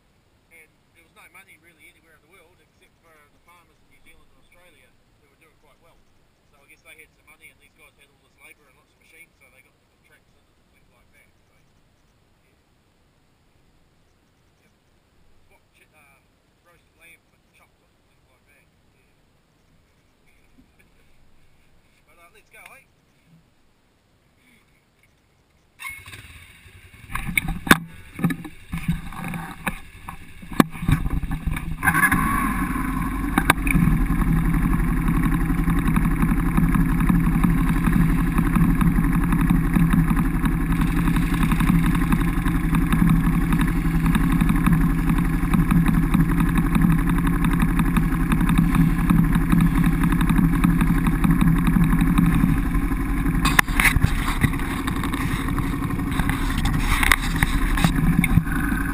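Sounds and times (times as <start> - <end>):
quad bike engine running: 25.8 - 58.9.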